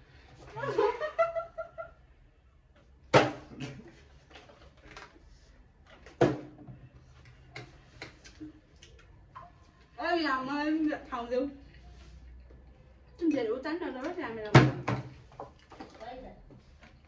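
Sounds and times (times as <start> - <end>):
plastic bottle landing on table: 3.1 - 3.8.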